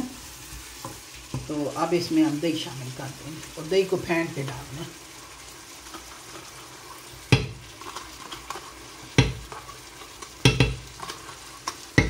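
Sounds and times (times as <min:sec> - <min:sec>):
masala sizzling in a frying pan: 0:00.0 - 0:12.0
yogurt stirred into pan: 0:04.4 - 0:12.0
utensils knocking against pan: 0:09.2 - 0:09.6, 0:10.4 - 0:11.1.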